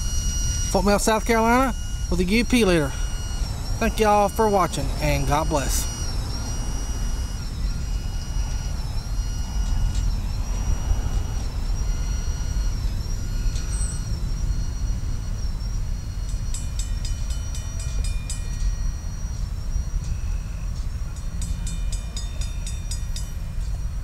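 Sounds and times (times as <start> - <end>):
high steady tones dipping: 0.0 - 17.6.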